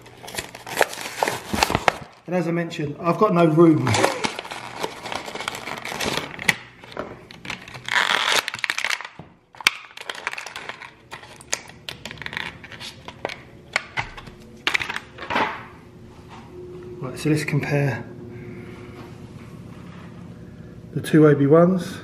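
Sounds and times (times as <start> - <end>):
plastic packaging crinkling: 0.0 - 2.3, 3.7 - 13.5.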